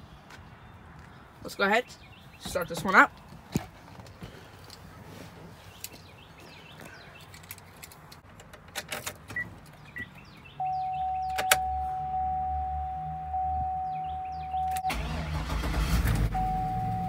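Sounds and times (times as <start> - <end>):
steady high tone: 10.6 - 15.0
keys clicking in ignition: 11.1 - 11.8.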